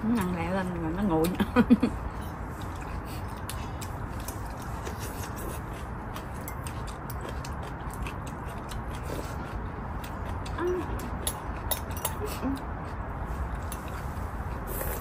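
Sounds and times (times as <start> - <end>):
person eating: 1.9 - 15.0
chopsticks clicking on ceramic bowls: 10.0 - 12.2.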